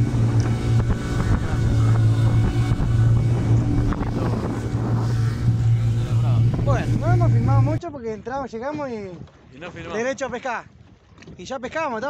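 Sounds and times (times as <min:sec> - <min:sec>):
motorboat engine running: 0:00.0 - 0:11.4
wind buffeting microphone: 0:00.0 - 0:11.5
water splashing along hull: 0:00.0 - 0:12.0.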